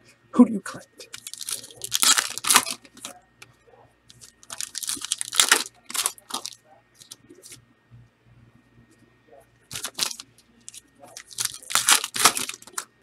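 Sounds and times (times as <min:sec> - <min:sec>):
card pack wrappers tearing: 0:01.0 - 0:03.1, 0:04.1 - 0:07.6, 0:09.7 - 0:12.9.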